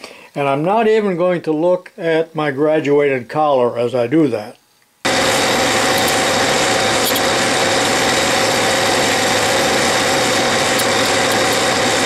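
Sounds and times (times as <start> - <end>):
metal lathe running with whine: 5.1 - 12.0.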